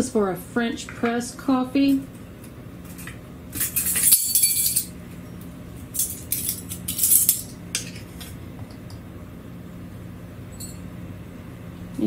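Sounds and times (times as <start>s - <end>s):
short metallic ring: 10.5s - 10.8s.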